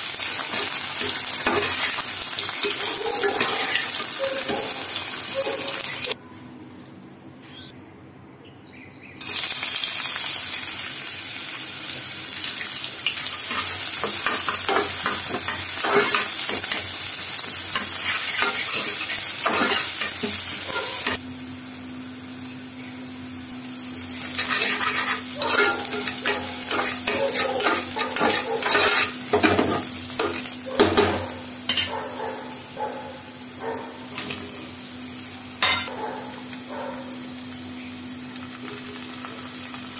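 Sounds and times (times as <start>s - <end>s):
food sizzling in hot oil: 0.0s - 6.2s, 9.2s - 39.9s
spatula scraping and tapping pan: 24.4s - 31.9s.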